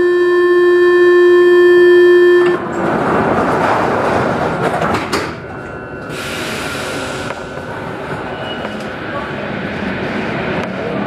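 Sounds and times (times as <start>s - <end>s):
train horn: 0.0s - 2.6s
rushing noise: 6.0s - 11.0s.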